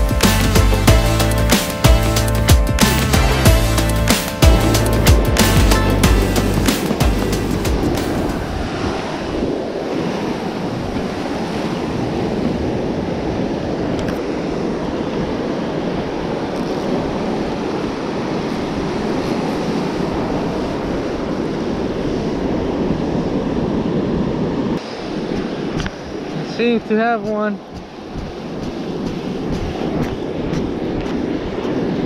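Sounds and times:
ocean surf breaking: 0.0s - 32.0s
wind rumbling on microphone: 3.4s - 32.0s.

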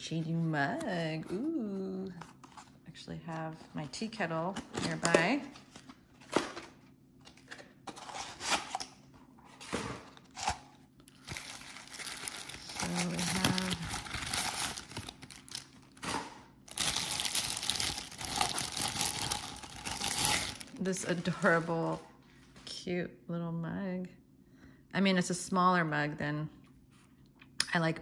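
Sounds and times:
plastic bag rustling: 9.7s - 22.1s
packing paper crinkling and tearing: 10.2s - 22.0s.

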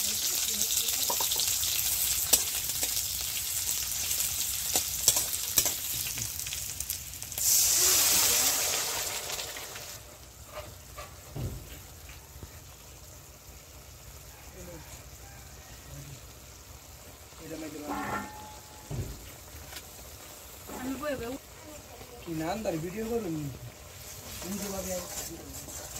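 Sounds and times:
onions sizzling in hot oil: 0.0s - 25.9s
spatula scraping metal pan: 10.4s - 11.3s, 17.8s - 18.9s, 23.9s - 25.9s.

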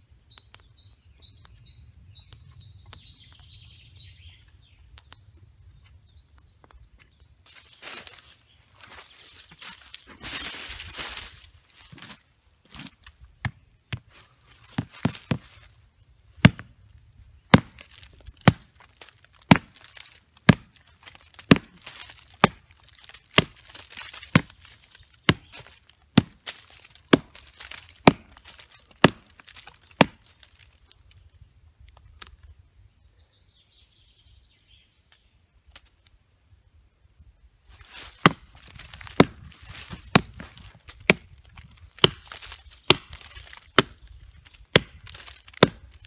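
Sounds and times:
knife chopping into log: 17.5s - 17.8s, 19.5s - 19.8s, 21.5s - 21.7s, 25.3s - 26.4s, 28.0s - 28.4s, 29.0s - 29.2s, 38.2s - 38.5s, 39.1s - 40.5s, 41.1s - 41.3s, 42.0s - 44.0s, 44.7s - 45.8s.

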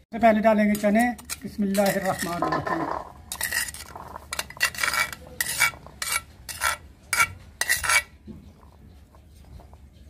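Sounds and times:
metal spoon scraping bowl: 0.6s - 10.0s.

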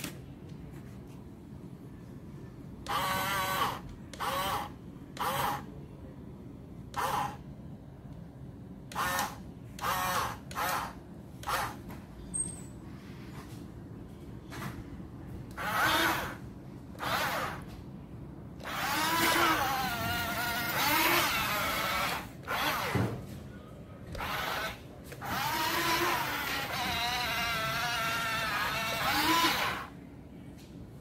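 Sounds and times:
toy truck electric motor whining: 2.8s - 5.7s, 6.9s - 7.4s, 8.9s - 11.8s, 15.5s - 16.4s, 17.0s - 17.7s, 18.6s - 23.0s, 24.2s - 29.9s.

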